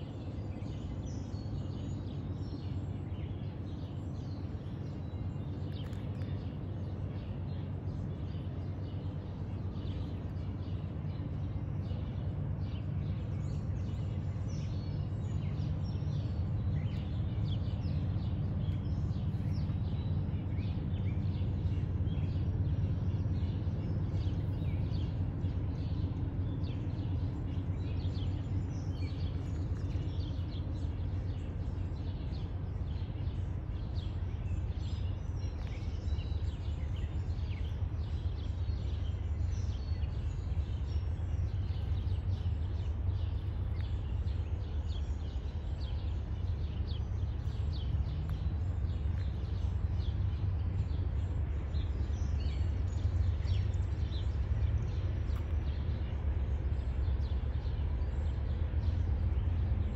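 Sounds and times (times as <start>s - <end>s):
birds chirping: 0.0s - 59.9s
steady low rumble: 0.0s - 59.9s.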